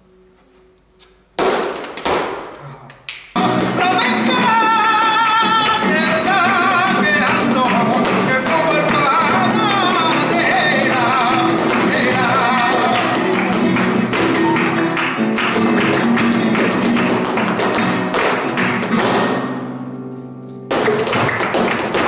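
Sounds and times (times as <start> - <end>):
percussion: 1.4 - 19.6, 20.7 - 22.0
flamenco guitar: 1.4 - 22.0
handclaps: 2.9 - 19.6, 20.7 - 22.0
person singing: 3.4 - 15.0.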